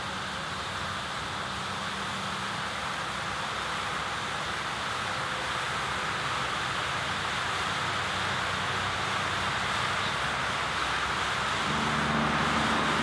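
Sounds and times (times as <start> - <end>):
faint low hum: 11.6 - 13.0.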